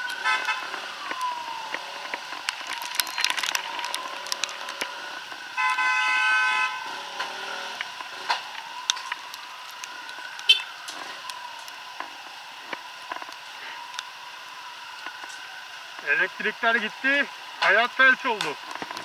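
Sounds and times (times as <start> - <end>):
raindrops ticking on camera: 0.0 - 5.8, 7.1 - 19.0
vehicle horn honking: 5.6 - 6.9.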